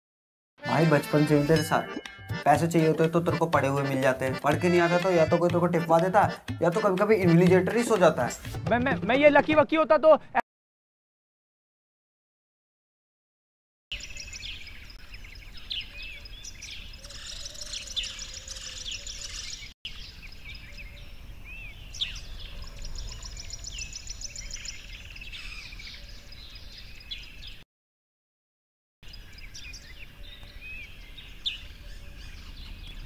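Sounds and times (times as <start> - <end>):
birds chirping and singing: 13.9 - 27.6, 29.0 - 33.0.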